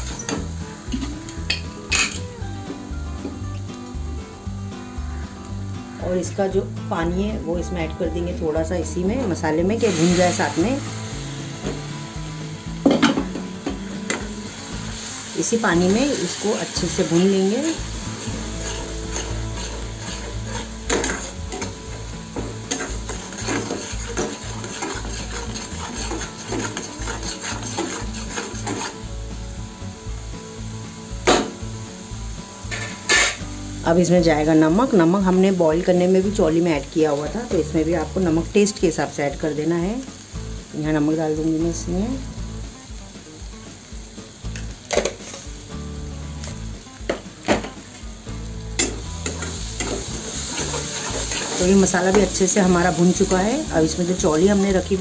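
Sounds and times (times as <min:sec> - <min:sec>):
paste sizzling: 0:00.0 - 0:55.0
metal spatula scraping a pan: 0:15.8 - 0:29.1, 0:32.7 - 0:33.5, 0:48.8 - 0:54.7.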